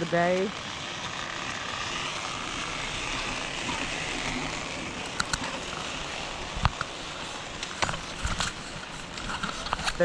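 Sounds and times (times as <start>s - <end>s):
chairlift rushing noise: 0.0s - 10.0s
sharp clicks: 5.1s - 5.6s.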